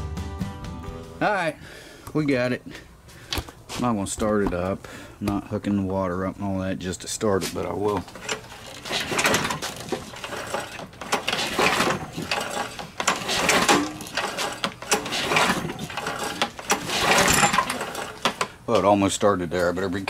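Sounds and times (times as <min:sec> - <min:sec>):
engine turning over: 0:08.1 - 0:18.5
recoil starter rope whirring: 0:08.1 - 0:18.5.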